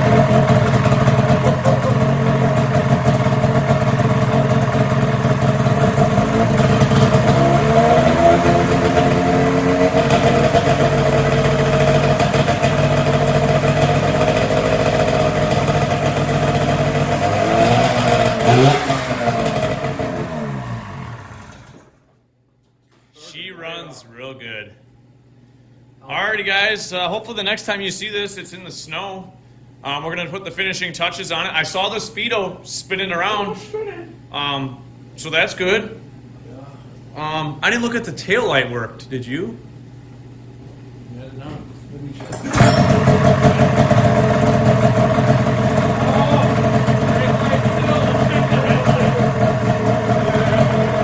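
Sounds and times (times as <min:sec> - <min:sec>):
snowmobile engine running loud: 0:00.0 - 0:21.1, 0:42.5 - 0:51.0
engine revving: 0:00.0 - 0:22.0, 0:42.4 - 0:51.0
engine winding down: 0:00.0 - 0:22.2, 0:42.3 - 0:51.0.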